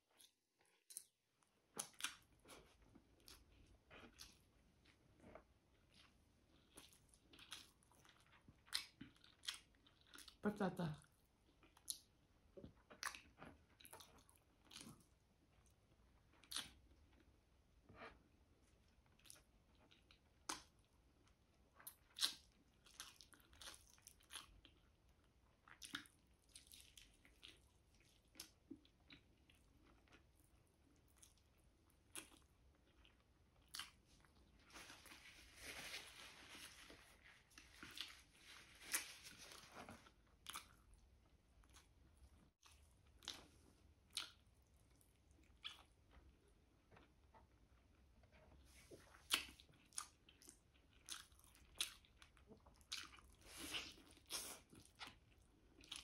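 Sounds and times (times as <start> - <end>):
close-up chewing: 0.1 - 10.4, 11.0 - 56.0
rustling: 34.6 - 40.1.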